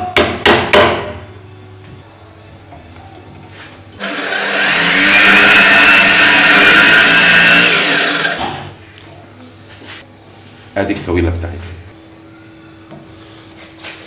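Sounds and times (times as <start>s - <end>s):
electric drill whining: 4.0s - 8.6s.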